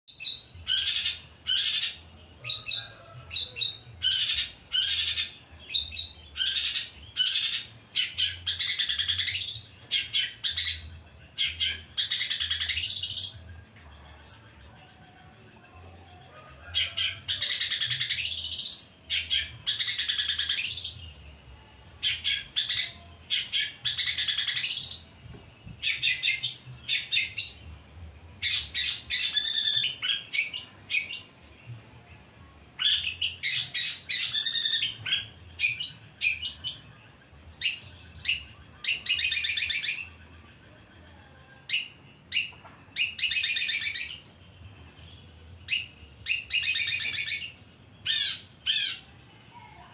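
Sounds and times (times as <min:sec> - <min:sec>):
bird singing rapid notes: 0:00.1 - 0:13.4, 0:28.4 - 0:31.4, 0:32.8 - 0:37.0, 0:45.6 - 0:49.0.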